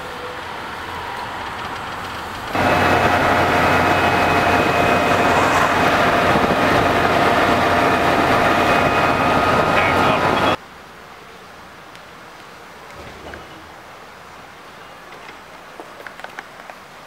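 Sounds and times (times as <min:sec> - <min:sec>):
road and wind noise: 0:00.0 - 0:17.0
electric motor whine: 0:02.6 - 0:10.6.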